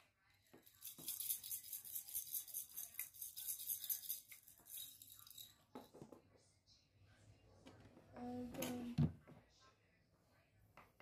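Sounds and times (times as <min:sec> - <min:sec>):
plastic toy shaker rattling: 0:00.4 - 0:05.6.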